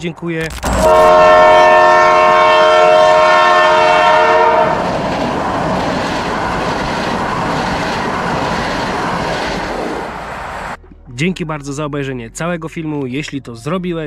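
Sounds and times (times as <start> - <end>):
train running past: 0.6 - 10.8
train horn: 0.7 - 4.9.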